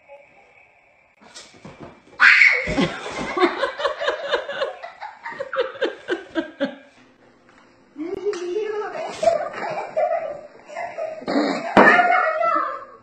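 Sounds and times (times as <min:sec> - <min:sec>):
girl laughing hard: 0:02.3 - 0:06.9, 0:09.2 - 0:12.8.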